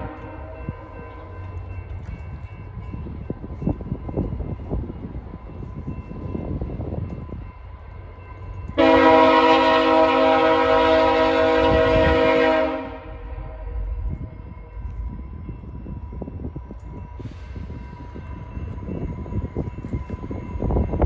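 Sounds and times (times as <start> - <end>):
locomotive air horn blast: 0.0 - 0.4, 8.8 - 13.7.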